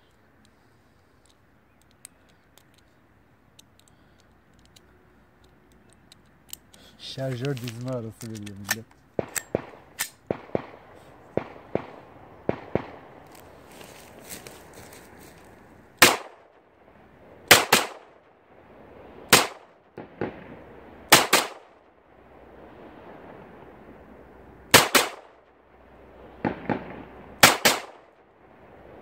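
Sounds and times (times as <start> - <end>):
pistol shots with echo: 9.2 - 13.2, 16.0 - 16.5, 17.5 - 18.1, 19.3 - 21.7, 24.7 - 25.3, 26.4 - 28.2.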